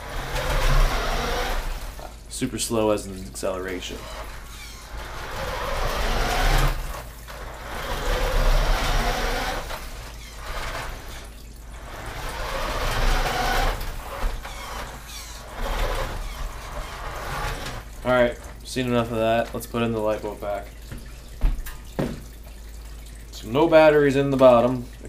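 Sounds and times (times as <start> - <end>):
toy car electric motor whirring: 0.0 - 2.1, 3.9 - 18.0.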